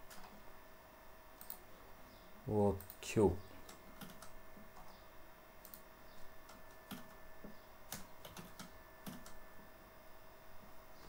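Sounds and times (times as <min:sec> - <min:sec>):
faint steady hum: 0:00.0 - 0:11.0
keyboard typing clicks: 0:01.4 - 0:01.6, 0:02.7 - 0:04.9, 0:05.6 - 0:07.2, 0:07.9 - 0:09.4.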